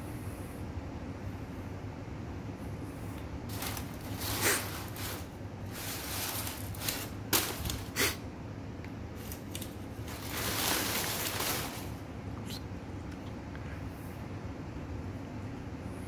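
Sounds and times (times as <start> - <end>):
packing paper crinkling: 3.5 - 8.2, 9.2 - 12.1
sharp paper crackles: 3.5 - 8.2, 9.2 - 12.0.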